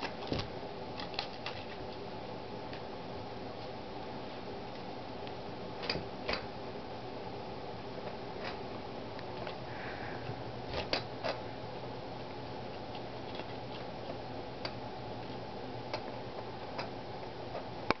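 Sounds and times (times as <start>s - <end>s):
low room hum: 0.0s - 18.0s.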